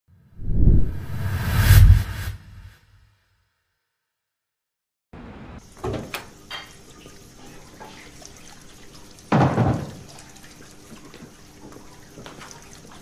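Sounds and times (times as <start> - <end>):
running tap water: 5.6 - 13.0
door shutting with thud: 9.3 - 10.0.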